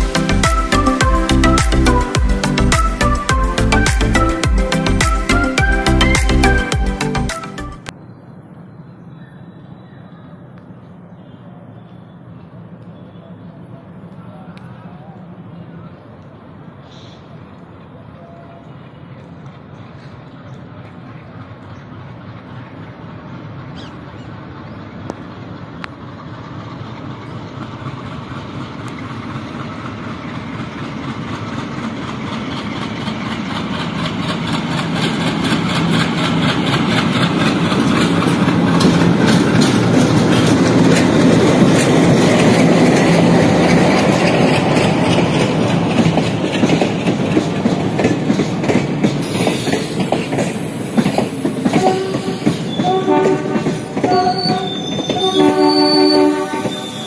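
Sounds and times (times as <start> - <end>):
diesel locomotive engine chugging: 0.0 - 7.9, 11.6 - 57.0
train wheels clacking over joints: 25.1 - 57.0.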